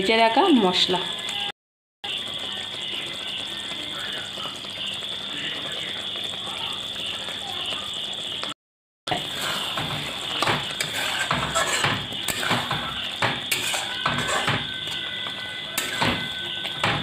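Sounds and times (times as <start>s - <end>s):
gravy sizzling: 0.0s - 17.0s
metal spatula scraping a pan: 9.1s - 17.0s.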